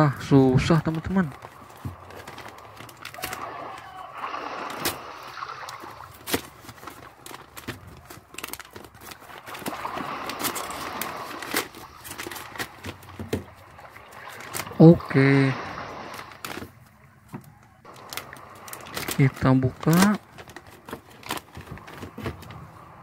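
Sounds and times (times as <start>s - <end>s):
plastic bag crinkling: 0.9s - 14.8s, 17.8s - 22.8s
cardboard card tearing: 5.8s - 12.8s, 17.9s - 22.5s.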